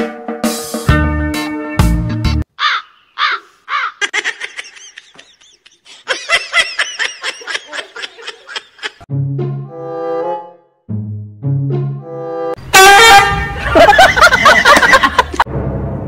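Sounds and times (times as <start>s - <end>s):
high falling cries: 2.5s - 9.0s
rapid high-pitched laughter: 3.7s - 9.1s, 13.5s - 15.4s.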